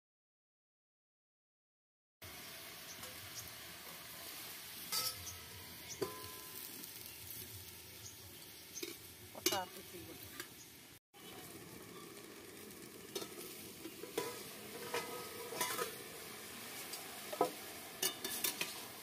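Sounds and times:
food sizzling in a pan: 2.2 - 19.0
utensils clinking against pans: 4.8 - 6.9, 8.8 - 9.8, 13.1 - 16.1, 16.8 - 19.0.

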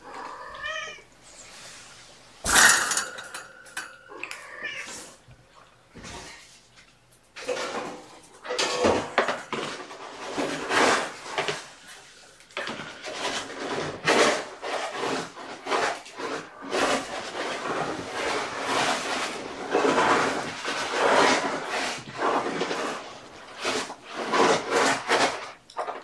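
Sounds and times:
scraping and rubbing strokes: 6.0 - 25.6.

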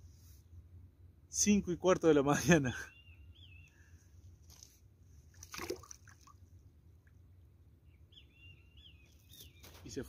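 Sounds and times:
water sloshing: 4.4 - 7.1
fish splashing into water: 5.3 - 6.4.

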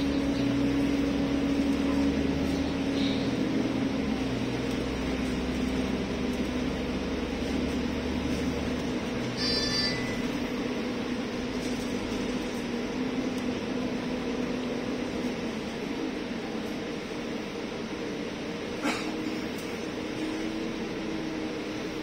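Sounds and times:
bus engine drone: 0.0 - 22.0
road noise: 0.0 - 22.0
high electronic beep: 9.4 - 10.4.

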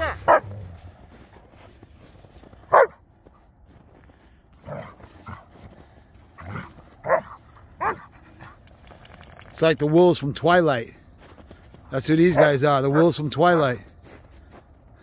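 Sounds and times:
dogs barking and yipping: 0.0 - 1.0, 2.7 - 3.0, 6.3 - 9.4, 12.2 - 13.7.

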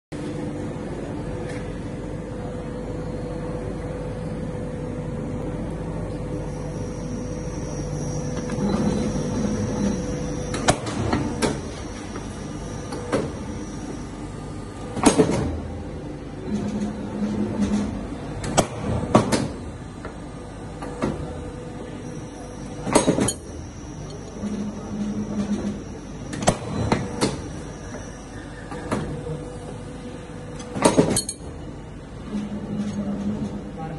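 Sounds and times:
hydraulic power pack hum: 0.2 - 33.9
faint high whine: 1.9 - 15.0.

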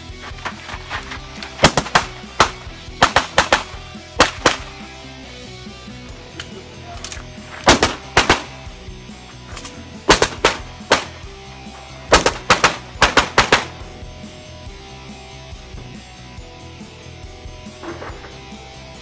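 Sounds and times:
pistol shots: 1.5 - 4.9, 7.0 - 8.7, 9.6 - 11.3, 12.1 - 13.8.

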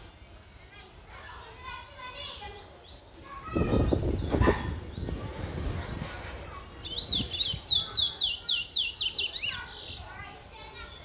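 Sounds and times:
bird whistling song: 6.8 - 10.1.

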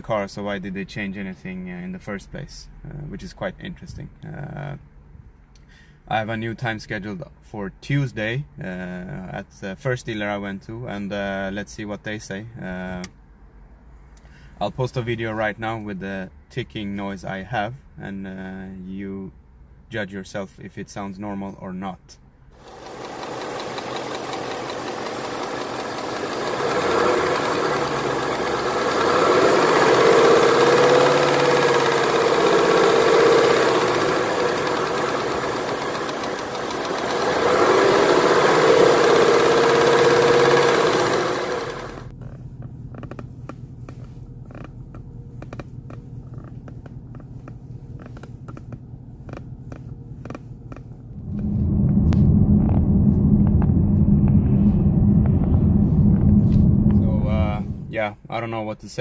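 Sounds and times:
sharp irregular clicks and creaks: 22.6 - 42.3, 42.9 - 51.5
low hum: 22.6 - 47.9, 48.8 - 58.0
car engine running and revving: 22.6 - 57.9
engine ticking: 22.6 - 57.9.

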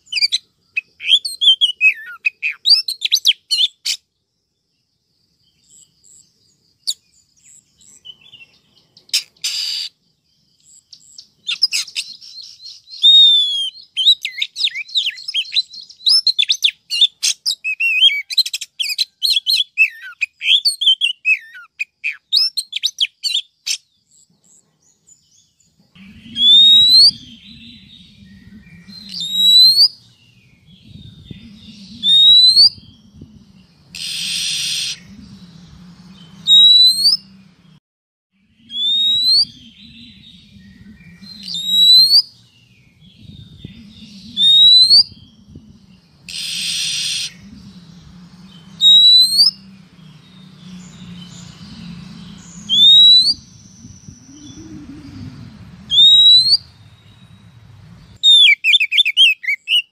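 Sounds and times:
bird chirping and whistling: 0.0 - 4.0, 9.1 - 9.9, 11.0 - 23.8, 26.0 - 37.3, 38.6 - 42.4, 43.0 - 45.6, 46.3 - 57.4, 58.2 - 59.9
low hum: 25.9 - 29.3, 32.8 - 34.0, 34.9 - 36.5, 45.1 - 46.3, 47.0 - 58.2
bird rasping call: 26.0 - 30.0, 33.9 - 37.4, 46.3 - 56.8.

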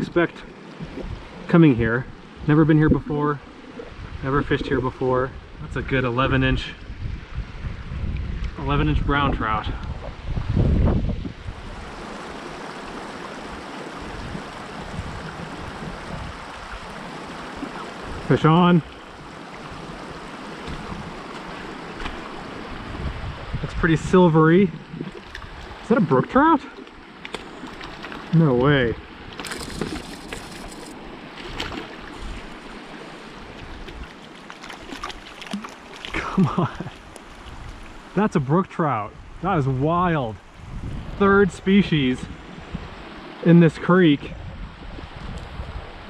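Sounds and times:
creek water running: 0.0 - 46.0
fish thrashing and splashing water: 26.9 - 28.3, 29.2 - 38.0.

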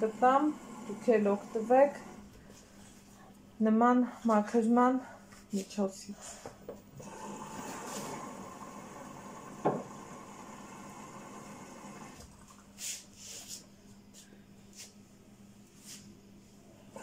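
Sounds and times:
washing machine drum swishing: 7.5 - 8.4
washing machine thump: 9.6 - 10.0.

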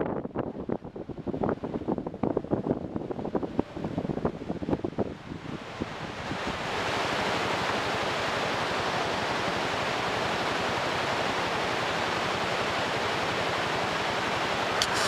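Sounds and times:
river rushing over rapids: 5.7 - 15.0.

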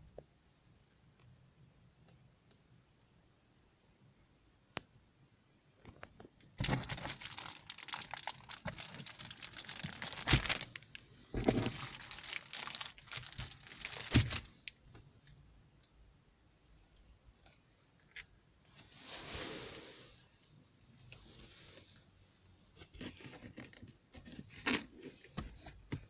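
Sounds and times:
plastic film crinkling: 6.6 - 14.7.

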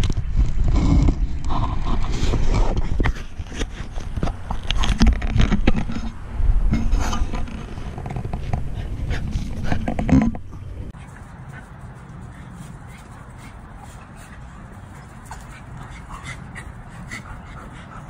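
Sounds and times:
microphone handling noise: 0.0 - 10.9.

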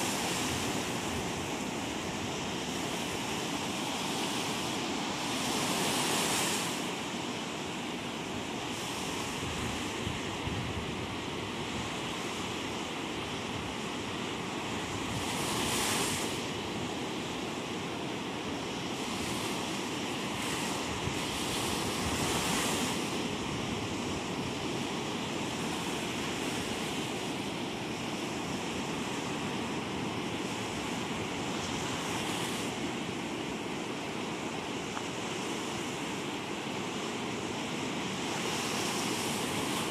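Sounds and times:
ocean surf breaking: 0.0 - 39.9
wind on microphone: 8.6 - 16.9, 19.0 - 33.1.

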